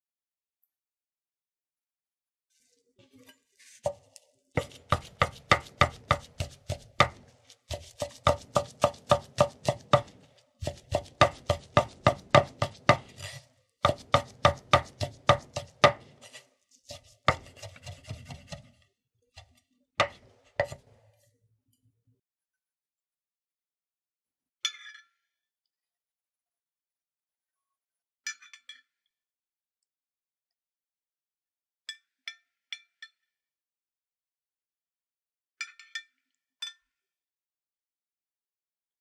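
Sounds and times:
knife chopping on wooden board: 3.9s - 18.7s, 20.0s - 20.9s.

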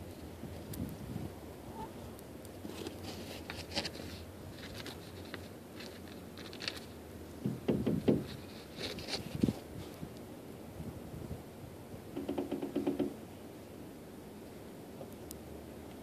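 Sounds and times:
dull thumps: 7.4s - 8.4s.

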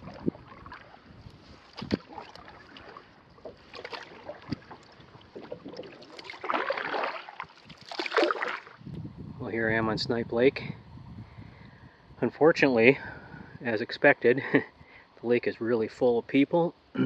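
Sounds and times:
paddle swishing water: 0.0s - 8.8s.

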